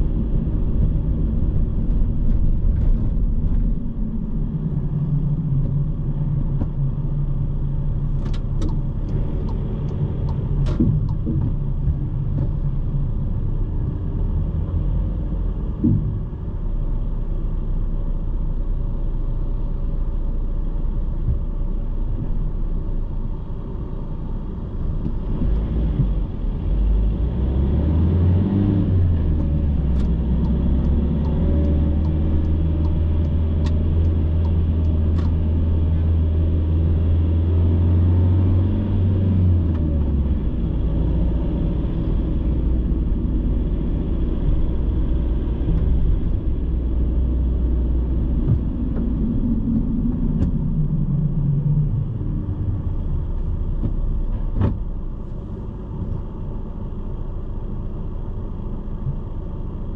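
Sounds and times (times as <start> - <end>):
car engine and road rumble: 0.0 - 59.9
light ticks: 8.2 - 12.5, 29.4 - 35.4.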